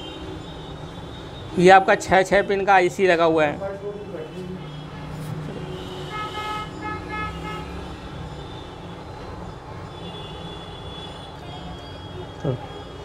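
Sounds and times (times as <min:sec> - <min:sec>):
low traffic rumble: 0:00.0 - 0:13.0
vehicle horn honking: 0:04.1 - 0:08.8.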